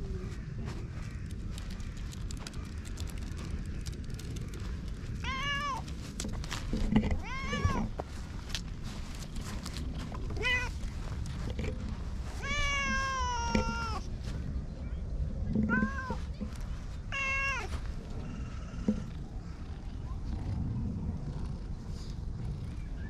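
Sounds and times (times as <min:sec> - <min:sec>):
cat meowing: 0:05.2 - 0:05.8, 0:07.2 - 0:07.9, 0:12.4 - 0:14.0, 0:17.1 - 0:17.7.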